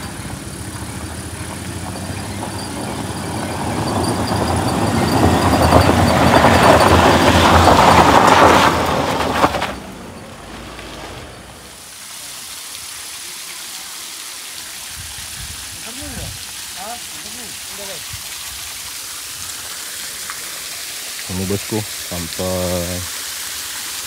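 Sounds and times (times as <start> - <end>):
heavy truck engine running: 0.0 - 11.8.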